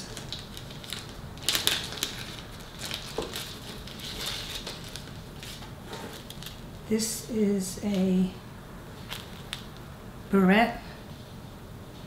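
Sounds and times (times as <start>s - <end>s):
packaging crinkling: 0.0s - 6.8s, 9.0s - 9.8s.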